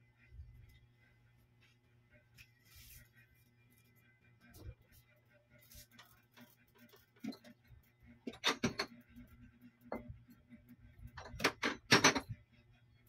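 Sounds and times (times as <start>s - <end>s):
sharp clicks and knocks: 8.2s - 9.2s, 11.1s - 12.4s.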